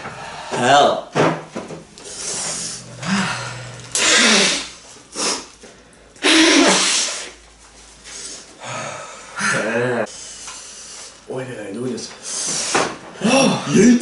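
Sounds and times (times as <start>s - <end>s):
man blowing his nose: 2.0s - 5.6s, 6.2s - 7.4s.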